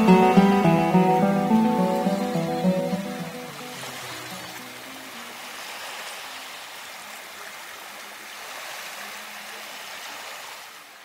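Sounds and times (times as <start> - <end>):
faint music: 0.0 - 5.3.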